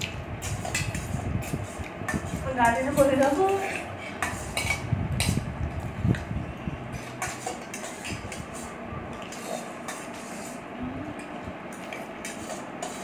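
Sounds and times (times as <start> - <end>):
metal spoons scraping bowls: 0.0 - 5.5, 6.8 - 13.0.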